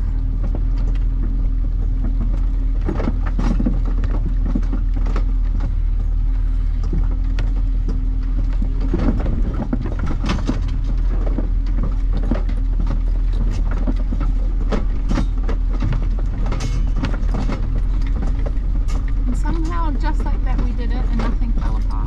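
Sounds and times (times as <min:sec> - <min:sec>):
van engine and tyre hum: 0:00.0 - 0:22.0
loose things rattling: 0:06.8 - 0:22.0.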